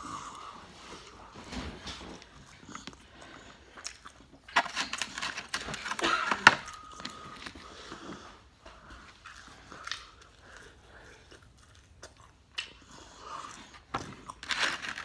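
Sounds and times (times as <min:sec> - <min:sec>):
person chewing: 0:00.0 - 0:15.0
foam takeout box crackling: 0:04.4 - 0:07.6, 0:14.4 - 0:15.0.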